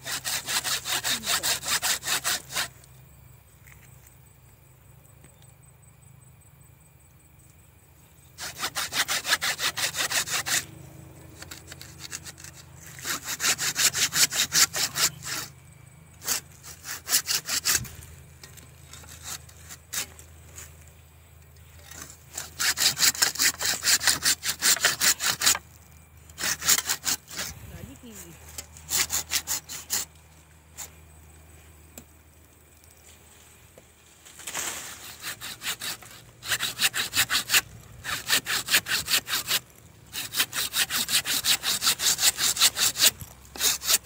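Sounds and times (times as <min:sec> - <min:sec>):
hand saw rasping through branch: 0:00.0 - 0:02.9, 0:08.4 - 0:10.7, 0:11.4 - 0:15.5, 0:16.2 - 0:20.7, 0:21.8 - 0:30.2, 0:34.4 - 0:44.0.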